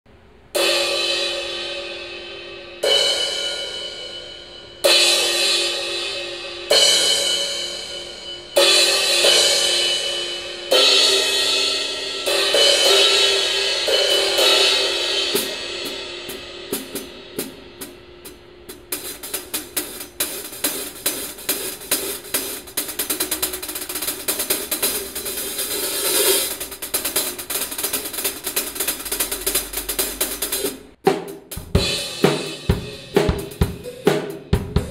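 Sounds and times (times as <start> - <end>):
fast hi-hat pattern: 13.9 - 34.9.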